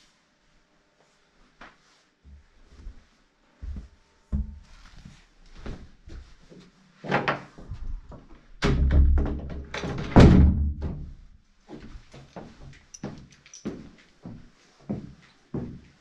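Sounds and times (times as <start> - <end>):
door knocking and thudding shut: 8.2 - 11.2.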